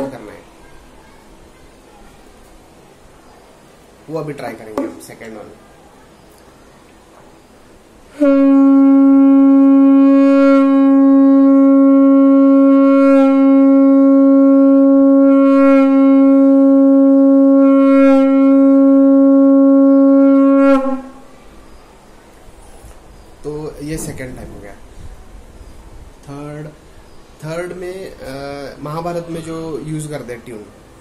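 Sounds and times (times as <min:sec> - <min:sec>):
conch shell blast: 0:08.1 - 0:21.4.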